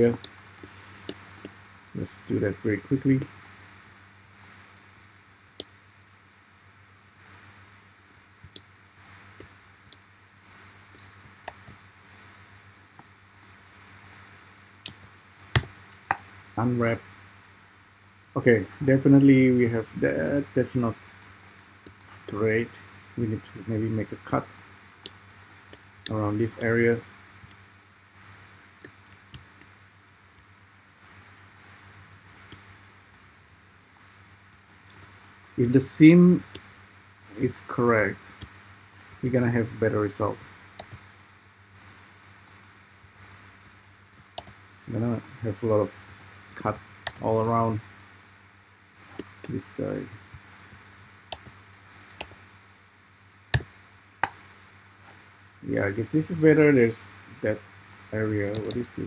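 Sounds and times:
faint low hum: 0:00.0 - 0:59.0
mouse and keyboard clicks: 0:48.9 - 0:49.6, 0:57.8 - 0:58.9.

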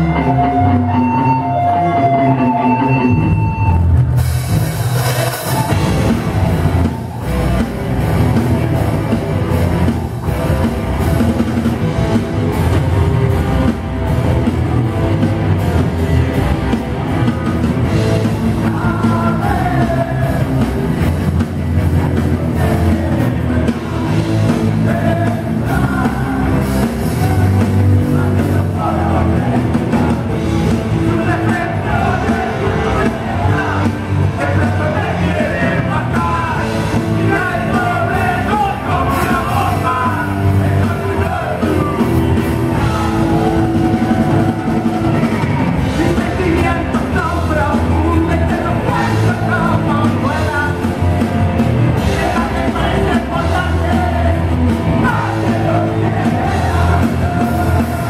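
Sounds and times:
rock band playing: 0:00.0 - 0:58.0
person singing lead vocal: 0:18.0 - 0:58.0.

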